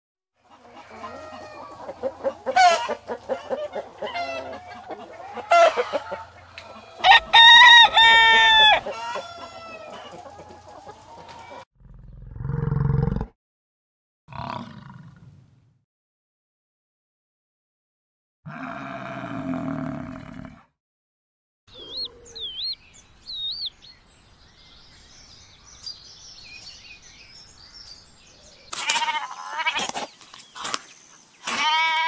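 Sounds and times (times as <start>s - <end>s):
chickens clucking: 0.4s - 11.6s, 21.7s - 23.7s
rooster crowing: 4.2s - 10.6s.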